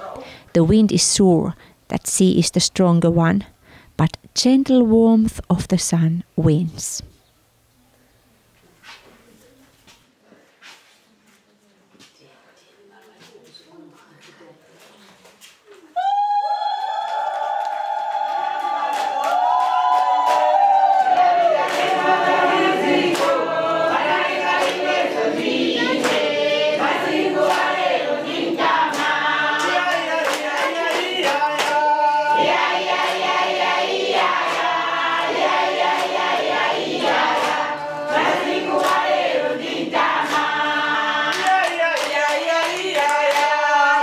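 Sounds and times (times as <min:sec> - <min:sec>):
hand clapping: 0:17.1 - 0:22.2, 0:23.0 - 0:23.4, 0:24.1 - 0:27.8, 0:28.8 - 0:33.5, 0:34.2 - 0:39.2, 0:40.1 - 0:40.6, 0:41.2 - 0:43.7
congregation singing: 0:18.6 - 0:44.0.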